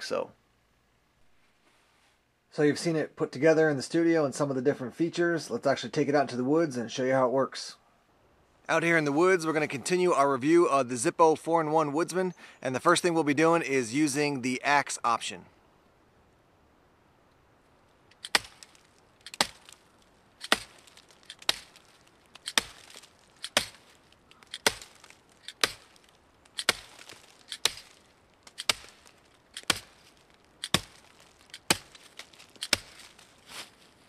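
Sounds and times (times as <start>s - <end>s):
axe chopping into log: 18.2s - 19.8s, 20.4s - 33.2s.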